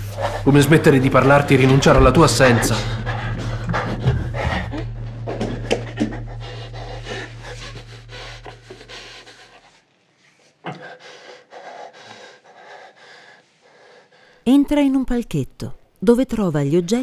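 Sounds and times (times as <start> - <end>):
man panting: 0.0 - 0.8, 2.4 - 14.4
low steady hum: 0.0 - 9.9.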